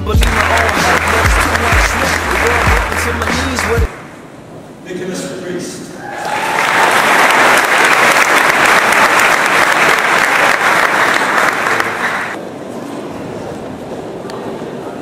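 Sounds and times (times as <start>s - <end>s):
audience applauding: 0.0s - 4.1s, 6.1s - 12.4s.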